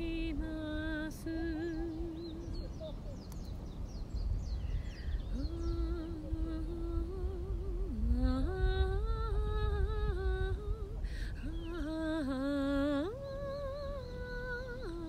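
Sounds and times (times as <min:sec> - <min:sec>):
woman singing soprano: 0:00.0 - 0:03.0, 0:05.3 - 0:15.0.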